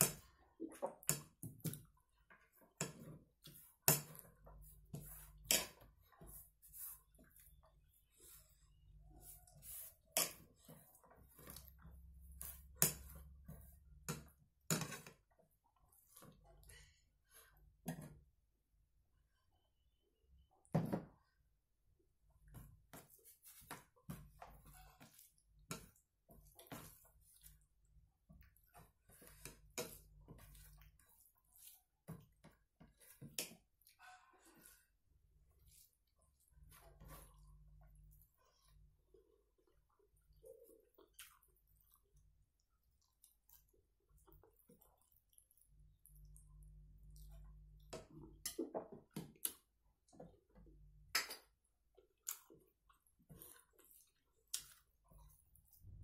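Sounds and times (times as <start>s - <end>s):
fingers mixing food on plate: 43.0s - 56.0s.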